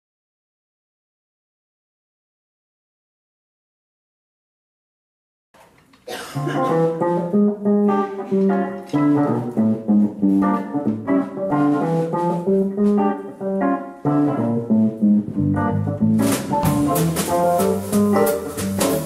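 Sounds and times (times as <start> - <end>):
electric guitar chords: 6.4 - 19.0.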